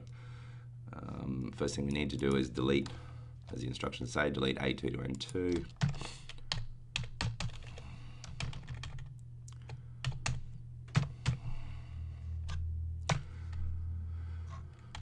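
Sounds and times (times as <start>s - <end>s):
low hum: 0.0s - 15.0s
keyboard keystrokes and clicks: 5.1s - 11.4s.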